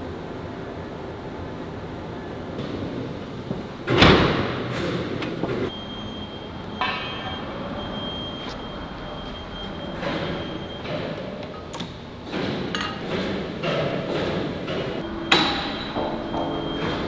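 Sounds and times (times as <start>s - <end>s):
factory noise: 0.0s - 17.0s
sharp metal clank: 15.2s - 17.0s.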